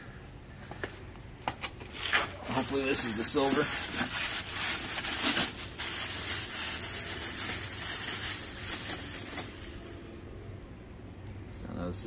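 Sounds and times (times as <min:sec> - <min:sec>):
plastic bag rustling and crinkling: 0:01.8 - 0:10.3.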